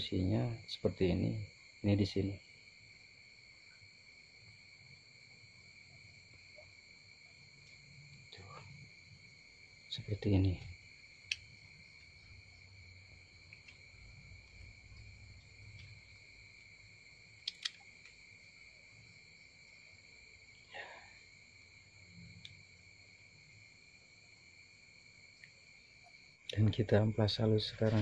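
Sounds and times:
crickets chirring: 0.0s - 28.0s
light clicks: 17.4s - 18.2s.

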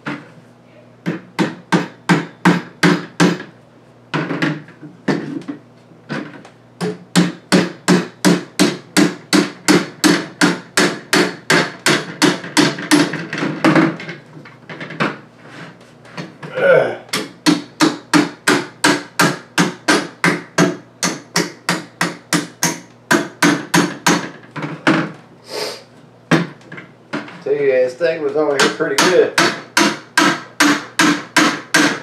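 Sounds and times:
rubber mallet knocking on wood: 1.0s - 3.5s, 6.1s - 14.1s, 17.1s - 25.1s, 28.6s - 32.0s.

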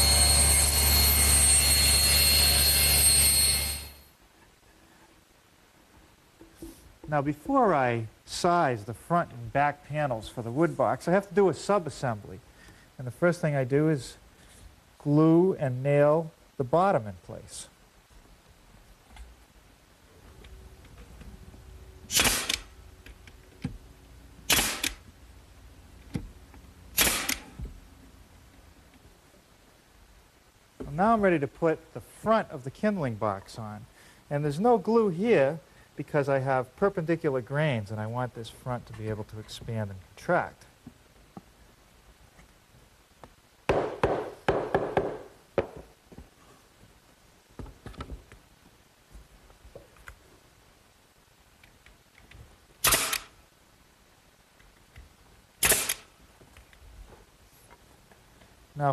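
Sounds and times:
nail gun firing: 22.1s - 22.8s, 24.5s - 25.0s, 26.9s - 27.6s, 52.8s - 53.4s, 55.6s - 56.1s.

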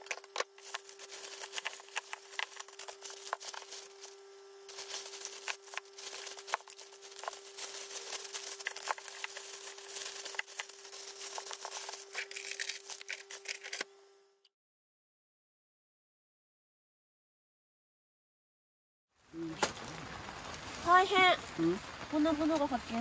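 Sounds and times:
plastic bags rustling and crinkling: 0.0s - 13.8s, 19.4s - 23.0s
steady hum: 0.0s - 14.5s.

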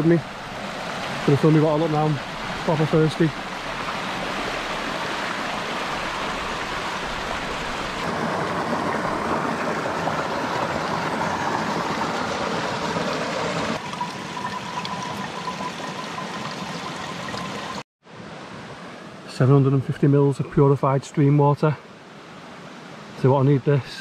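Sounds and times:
stream running over stones: 0.0s - 17.8s
water gurgling into a pouch: 13.8s - 17.8s.

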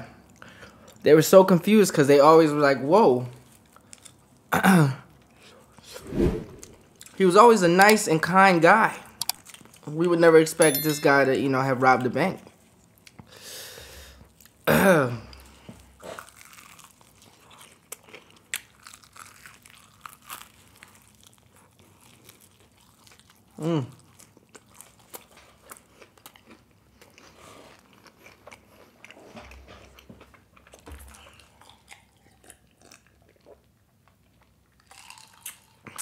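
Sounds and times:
crunchy chewing: 15.4s - 36.0s.

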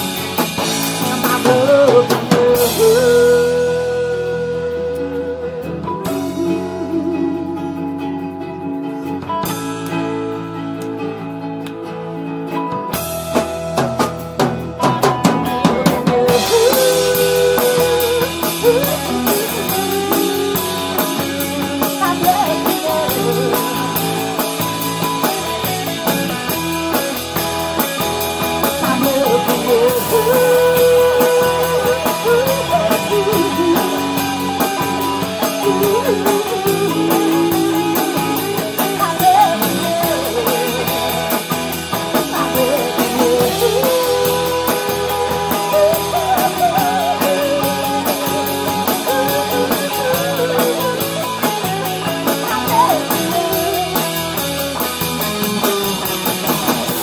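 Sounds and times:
drum kit: 0.0s - 57.0s
electric and acoustic guitars: 0.0s - 57.0s.

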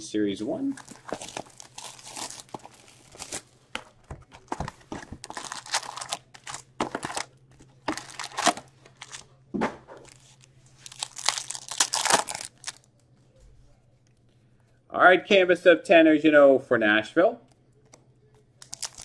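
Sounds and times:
plastic shrink wrap tearing: 0.7s - 3.6s, 4.4s - 9.3s, 10.0s - 12.9s, 18.6s - 19.0s
foil packs crinkling: 0.7s - 9.3s, 10.0s - 12.9s, 18.6s - 19.0s.

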